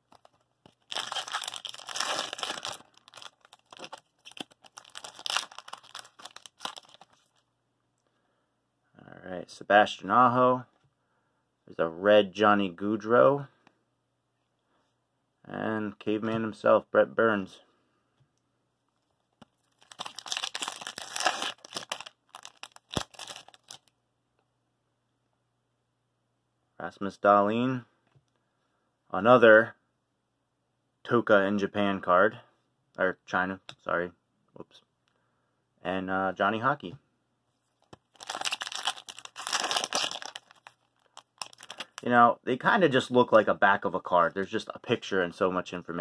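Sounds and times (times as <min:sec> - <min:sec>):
foil wrapper crinkling and tearing: 0:00.1 - 0:07.4, 0:19.6 - 0:23.9, 0:38.0 - 0:42.0.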